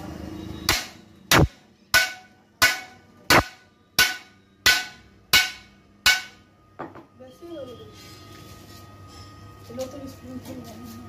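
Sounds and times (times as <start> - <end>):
hammer striking steel: 0.6 - 7.0.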